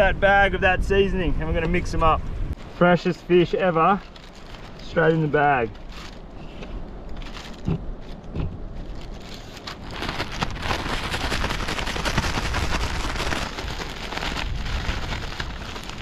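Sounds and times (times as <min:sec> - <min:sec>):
plastic bag crinkling: 0:03.9 - 0:04.9, 0:08.8 - 0:16.0.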